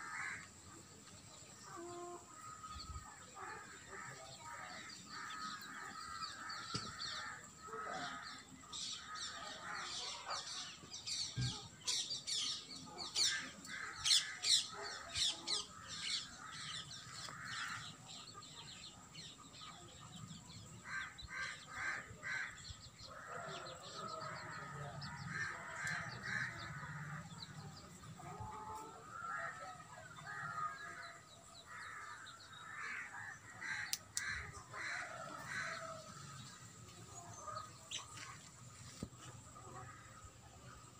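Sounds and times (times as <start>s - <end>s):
birds repeated lower calls: 1.6s - 40.8s
sparrows chirping: 2.5s - 28.2s.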